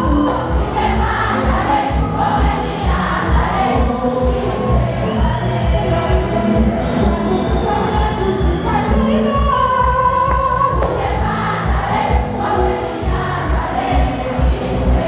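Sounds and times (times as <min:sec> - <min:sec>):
women's choir singing in harmony: 0:00.0 - 0:07.0, 0:10.7 - 0:15.0.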